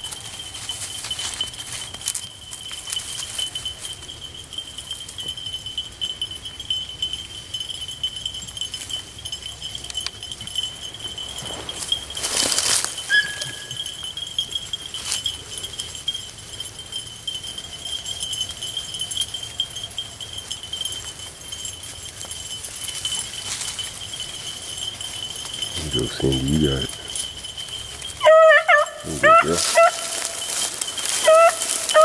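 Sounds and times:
distant dogs baying: 3.4s - 32.0s
steady thin high tone: 9.8s - 15.2s.

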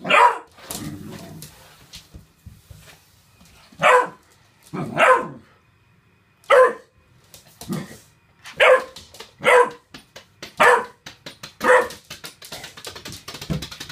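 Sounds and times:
puppy barking: 0.0s - 0.5s, 3.8s - 4.2s, 4.8s - 5.5s, 6.5s - 6.9s, 8.5s - 9.9s, 10.6s - 11.0s, 11.6s - 12.0s.

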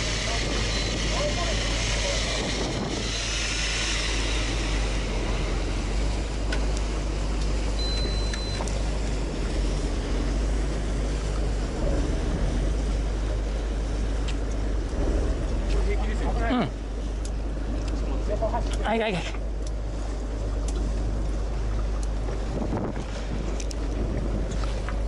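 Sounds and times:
boat engine rumbling: 0.0s - 25.0s
wind and water hiss: 0.0s - 25.0s
high beep: 0.7s - 1.0s, 7.8s - 8.7s.

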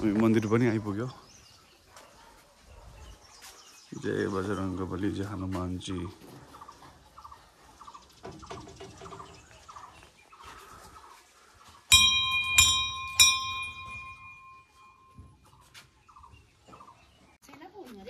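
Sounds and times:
temple bell ringing: 11.9s - 15.4s.

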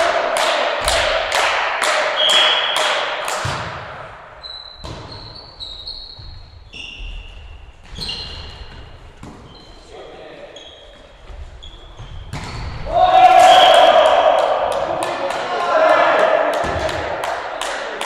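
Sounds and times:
people clapping in rhythm: 0.0s - 3.4s, 13.8s - 18.0s
volleyball being hit: 0.4s - 4.0s, 16.2s - 17.3s
sneakers squeaking on wooden floor: 4.4s - 12.8s.

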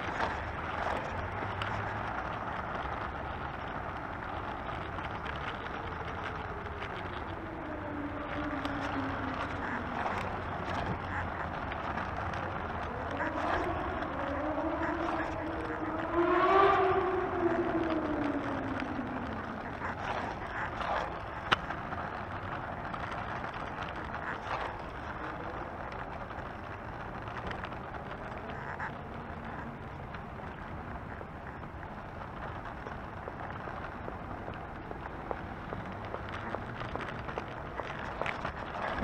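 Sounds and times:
scooter wheels rolling over asphalt: 0.0s - 39.0s
siren wailing: 5.3s - 21.8s.

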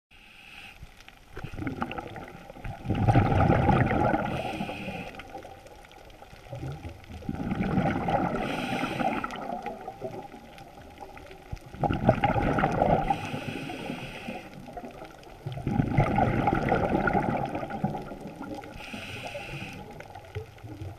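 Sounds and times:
regulator inhalation hiss: 0.2s - 0.9s, 4.3s - 5.4s, 8.4s - 9.4s, 13.1s - 14.6s, 18.7s - 20.0s
gurgling exhaled bubbles: 1.3s - 20.9s.

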